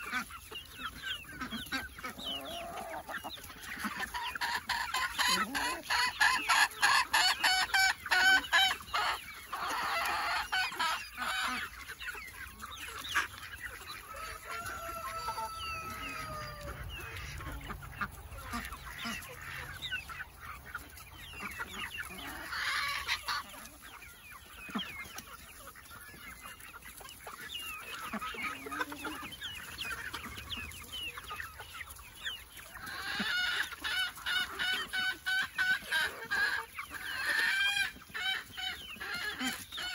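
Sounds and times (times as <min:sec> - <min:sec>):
chickens clucking and squawking: 0:00.0 - 0:39.9.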